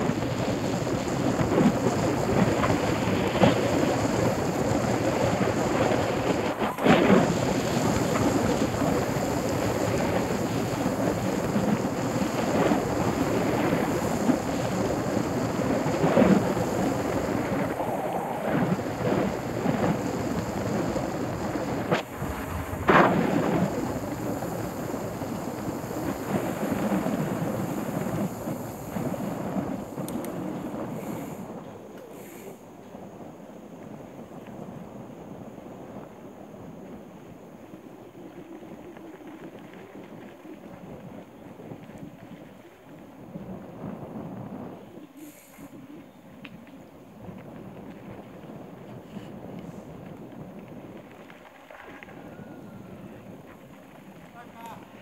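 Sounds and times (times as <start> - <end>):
tyres rumbling over dirt: 0.0 - 32.3, 46.7 - 55.0
wind rushing over microphone: 0.0 - 55.0.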